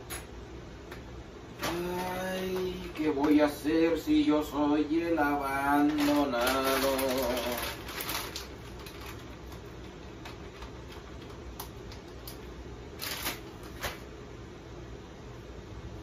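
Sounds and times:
steady low hum: 0.0 - 16.0
plastic packaging crinkling: 5.3 - 14.1.

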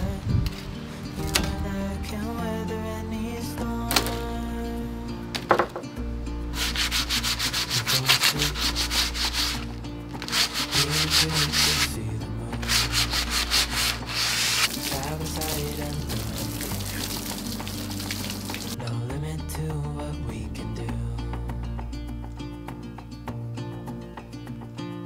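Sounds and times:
garden hose spraying water: 6.6 - 11.9, 12.6 - 18.8
sandpaper rasping on wood: 6.6 - 12.0, 12.6 - 16.3.

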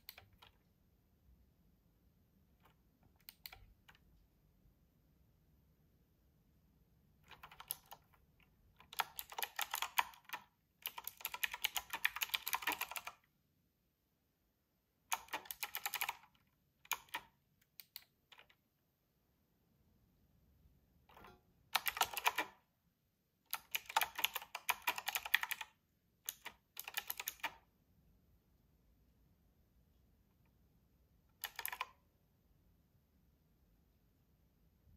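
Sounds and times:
mechanical keyboard typing: 0.0 - 0.6, 2.6 - 4.0, 7.2 - 13.3, 15.1 - 18.6, 21.1 - 22.6, 23.5 - 27.7, 31.3 - 32.0.

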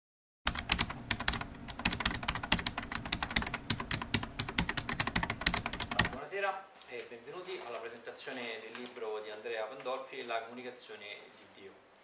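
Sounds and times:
keyboard typing: 0.5 - 6.2.

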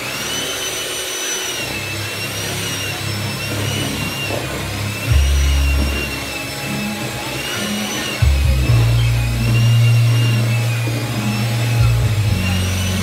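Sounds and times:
hand mixer motor whine: 0.0 - 13.0
deep rumble: 5.0 - 6.7, 8.2 - 13.0.

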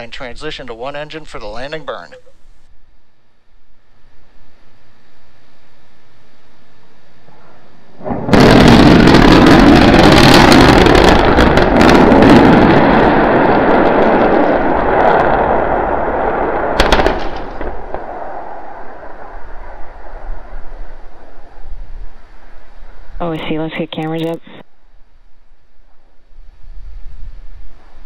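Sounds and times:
sharp crack: 8.0 - 20.7
explosion rumbling roar: 8.0 - 22.1.

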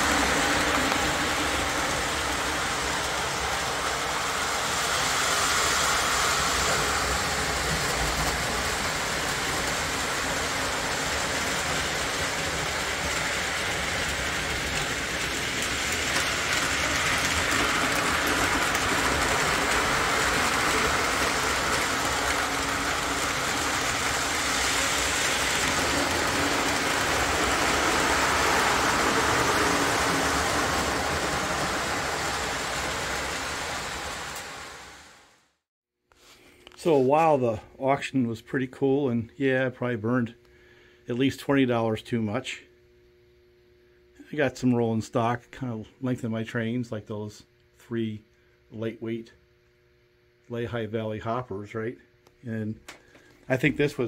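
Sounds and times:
model train running on track: 0.0 - 35.1.

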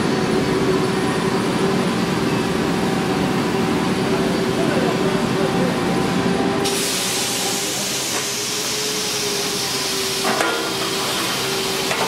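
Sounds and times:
compressed air hissing: 6.6 - 11.9.

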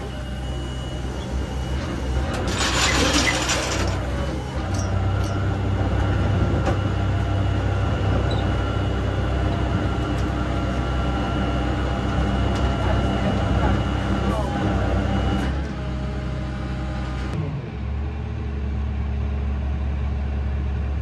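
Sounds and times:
large vehicle engine rumbling: 0.0 - 21.0.

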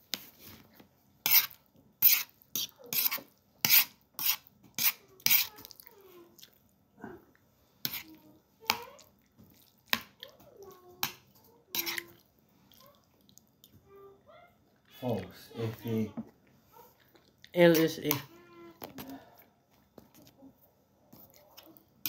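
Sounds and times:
spoon scraping a plate: 1.2 - 5.6, 7.8 - 8.1, 11.7 - 12.1.

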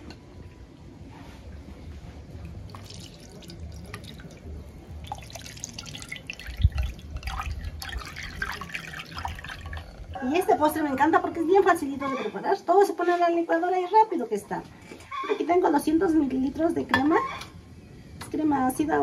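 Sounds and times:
liquid pouring and splashing: 2.4 - 10.2.

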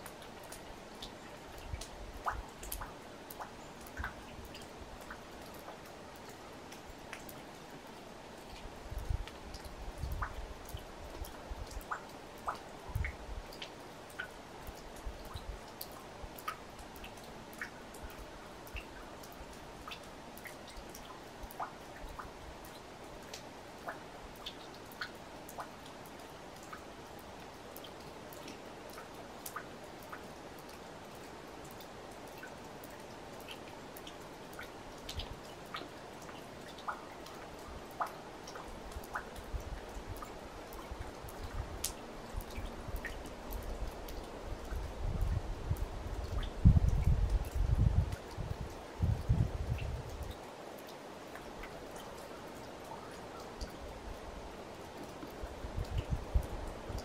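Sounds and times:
faint steady background noise: 0.0 - 57.0
water dripping: 0.0 - 57.0.

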